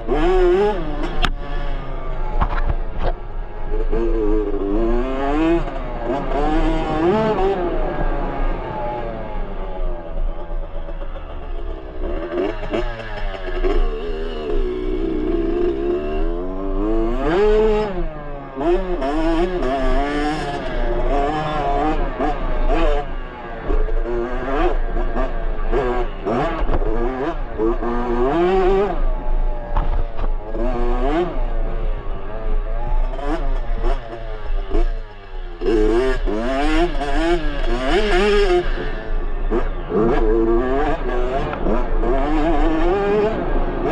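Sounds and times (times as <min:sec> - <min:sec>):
dirt bike engine revving: 0:00.0 - 0:43.9.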